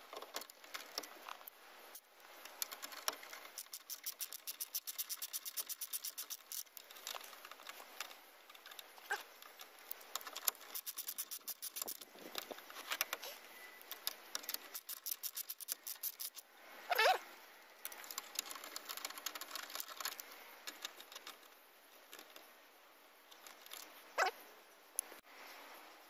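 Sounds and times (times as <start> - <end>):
socket ratchet clicking: 2.5 - 6.7, 9.9 - 12.0, 13.8 - 16.4
brief high squeak: 16.9 - 17.3.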